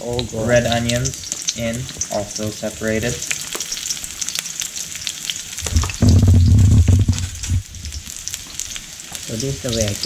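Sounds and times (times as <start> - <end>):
vegetables sizzling in oil: 0.0 - 10.0
loud low rumble: 5.6 - 8.0.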